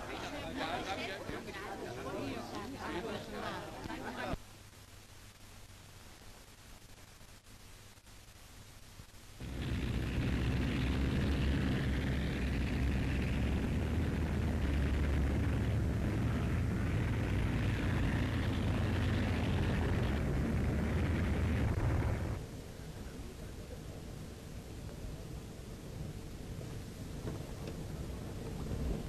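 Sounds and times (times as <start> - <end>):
rushing noise: 9.4 - 22.5
heavy engine rumble: 9.4 - 29.0.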